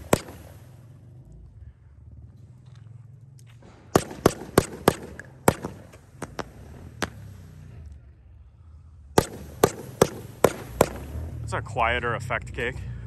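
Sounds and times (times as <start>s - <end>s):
firework cake pops: 0.0s - 0.6s, 9.2s - 11.4s.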